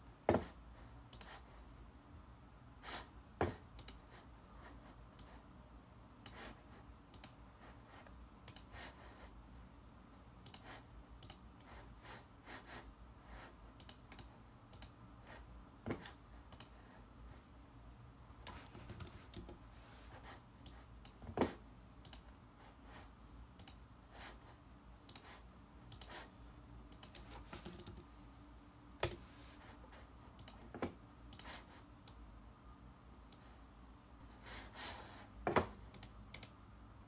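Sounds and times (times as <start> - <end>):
computer mouse clicks: 1.1 - 1.4, 3.7 - 4.1, 5.1 - 5.4, 6.2 - 7.4, 8.4 - 8.8, 10.4 - 11.7, 13.8 - 15.0, 15.9 - 16.8, 18.4 - 19.6, 20.6 - 22.3, 23.5 - 23.9, 25.0 - 26.3, 26.9 - 28.1, 30.4 - 32.3, 35.6 - 36.6.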